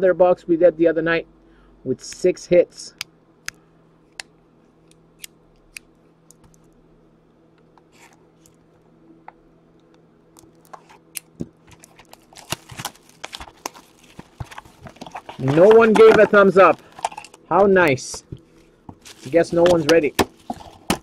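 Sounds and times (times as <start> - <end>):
card packs rustling and crinkling: 10.5 - 21.0.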